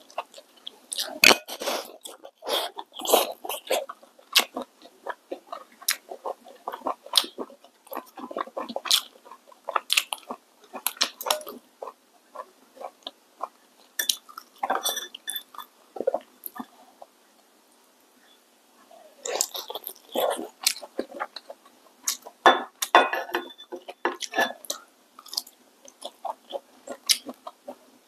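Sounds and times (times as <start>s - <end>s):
chewing and biting food: 0.1s - 16.7s.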